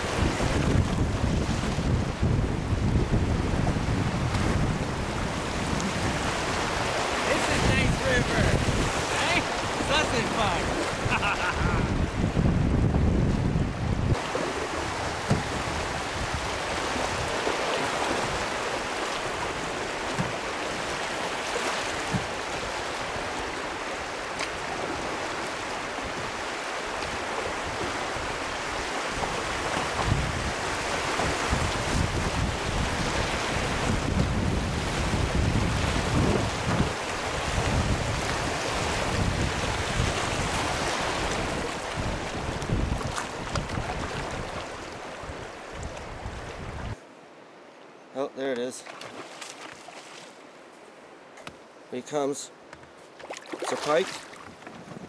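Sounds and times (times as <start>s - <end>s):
wind buffeting microphone: 0.0s - 47.0s, 54.1s - 55.0s
river water rushing and splashing: 0.0s - 55.0s.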